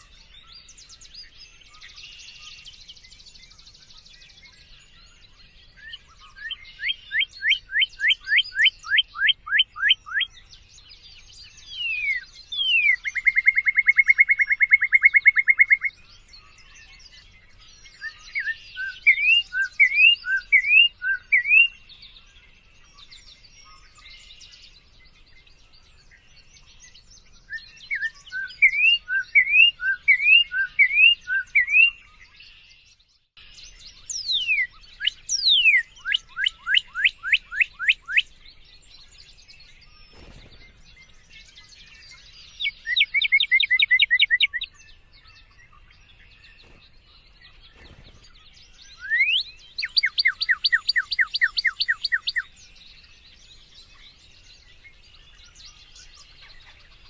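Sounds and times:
cardinal singing whistles: 17.9 - 21.8, 27.5 - 32.2, 34.0 - 38.3, 39.7 - 44.8, 48.8 - 52.5.

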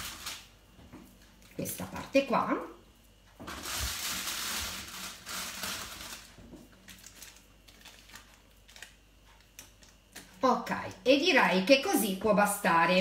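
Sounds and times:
baking paper crinkling: 0.0 - 1.7, 3.4 - 10.4.

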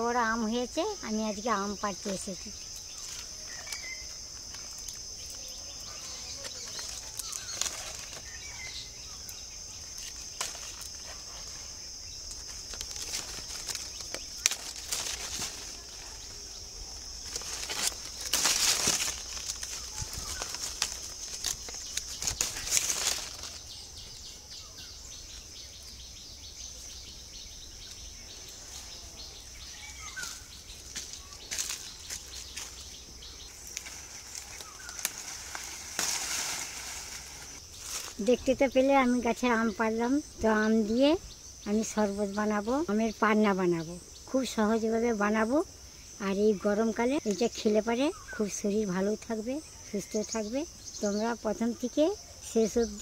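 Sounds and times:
high-pitched insect drone: 0.0 - 53.0
tree leaves and branches rustling: 0.0 - 53.0
sharp clicks of fruit picking: 2.0 - 24.4, 30.1 - 38.3.

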